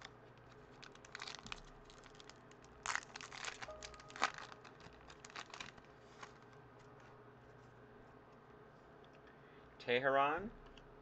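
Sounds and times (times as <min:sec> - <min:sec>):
foil wrapper crinkling: 0:00.0 - 0:06.6.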